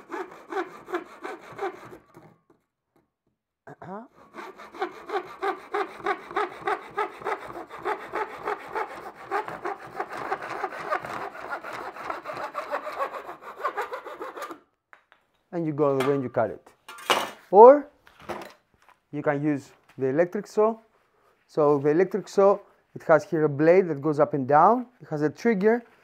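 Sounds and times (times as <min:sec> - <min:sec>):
hand saw cutting wood: 0:00.0 - 0:02.6, 0:04.1 - 0:14.6.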